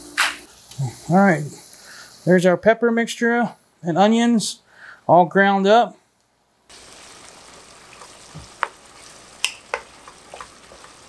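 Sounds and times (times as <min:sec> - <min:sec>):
meat sizzling in a frying pan: 0:06.7 - 0:11.0
wooden spoon scraping a pan: 0:07.9 - 0:11.0.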